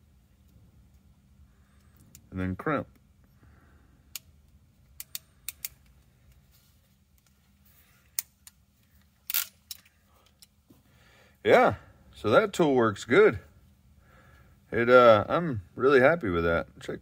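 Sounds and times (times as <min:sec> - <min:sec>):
ratcheting crimper clicks: 0:04.1 - 0:06.4, 0:08.1 - 0:10.5.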